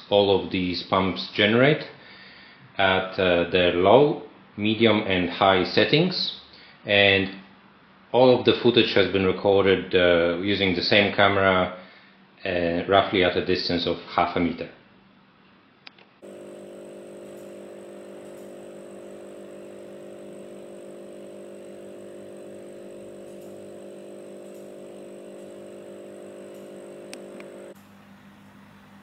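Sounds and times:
aquarium air pump humming: 16.2s - 29.0s.

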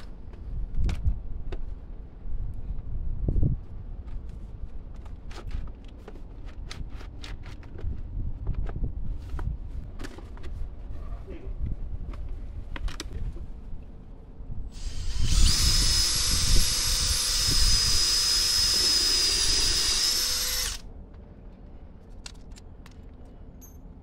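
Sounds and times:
cordless drill boring into wood: 14.8s - 20.8s.

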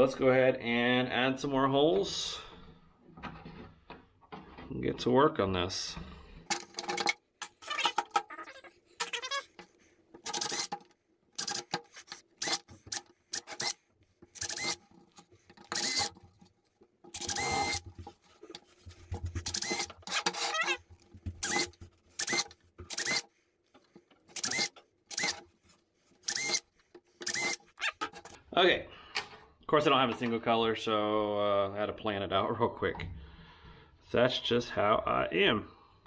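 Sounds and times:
drill boring through plastic: 9.0s - 10.8s, 11.4s - 14.9s, 15.6s - 16.2s, 17.1s - 18.0s, 19.4s - 23.3s, 24.3s - 25.5s, 26.2s - 28.4s.

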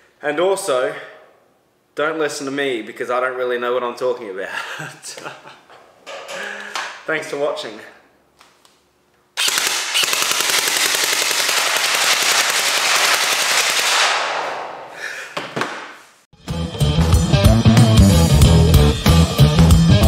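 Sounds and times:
gel blaster full-auto firing: 9.4s - 14.8s.

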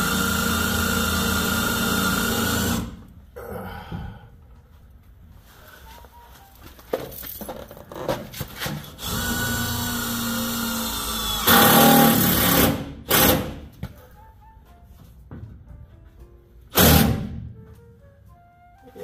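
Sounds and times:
power drill driving screw: 0.0s - 3.0s, 9.0s - 13.5s, 16.7s - 17.2s.

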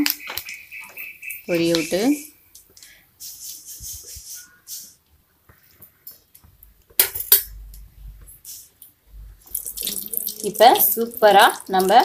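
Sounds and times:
hot oil sizzling and crackling: 9.4s - 12.0s.

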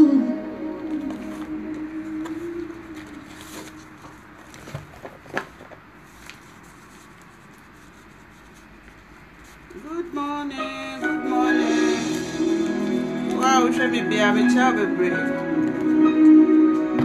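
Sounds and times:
paper and cardboard rustling: 0.8s - 9.9s.

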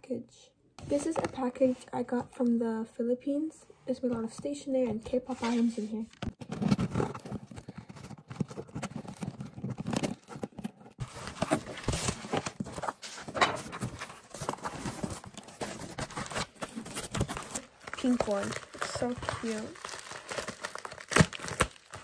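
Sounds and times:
parcels tapping and rustling: 0.8s - 1.7s, 4.0s - 22.0s
scissors scraping cardboard: 5.2s - 18.7s.

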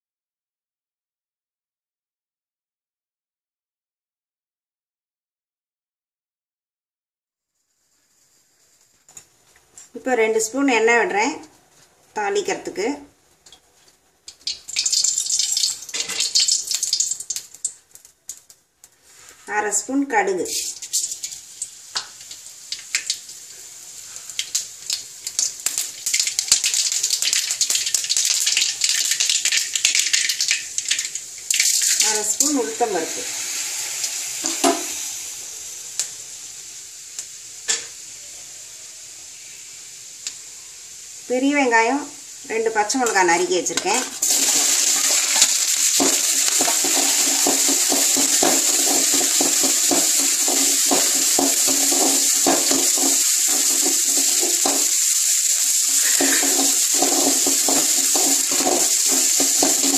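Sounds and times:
oil sizzling and crackling: 7.4s - 59.9s
spatula stirring clicks: 45.0s - 54.9s, 55.9s - 59.9s.

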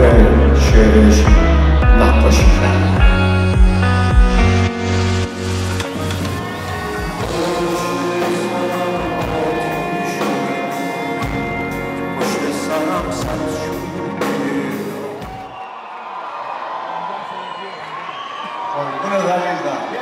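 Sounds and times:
man singing pop song: 0.0s - 3.9s, 7.2s - 15.2s
band accompaniment: 0.0s - 15.6s.

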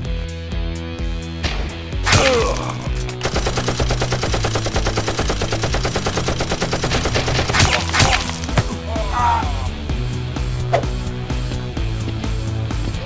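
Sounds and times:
rapid automatic gunfire: 3.0s - 8.5s.

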